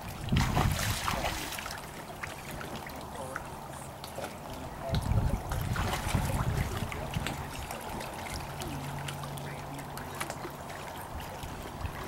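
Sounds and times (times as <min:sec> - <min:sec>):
wind rumbling on microphone: 0:00.0 - 0:01.6, 0:04.6 - 0:10.0
water lapping against a dock: 0:00.0 - 0:12.0.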